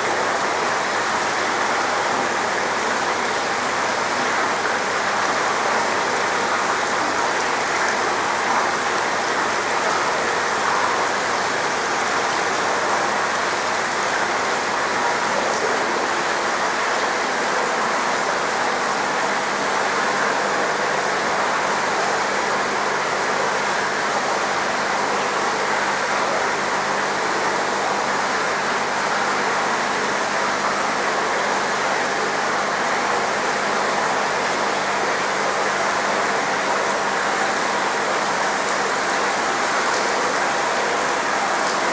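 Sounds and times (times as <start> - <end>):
water rushing and bubbling in tank: 0.0 - 41.9.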